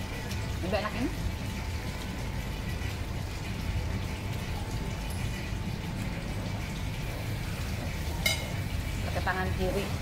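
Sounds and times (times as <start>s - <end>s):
dining room background noise: 4.3s - 9.3s.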